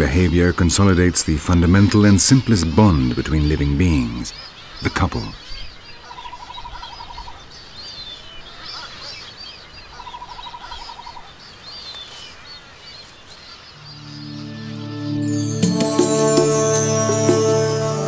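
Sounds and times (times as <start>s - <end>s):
birds chirping: 0.0s - 18.0s
music: 13.8s - 18.0s.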